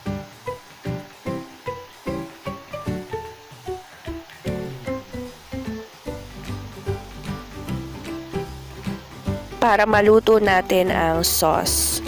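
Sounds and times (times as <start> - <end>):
background music with short plucked notes: 0.0 - 12.0.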